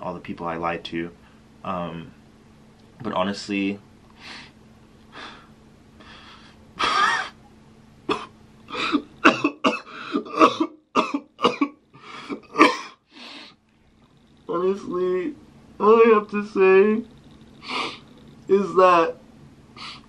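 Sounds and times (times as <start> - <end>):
man coughing: 6.8 - 7.4, 8.1 - 13.1.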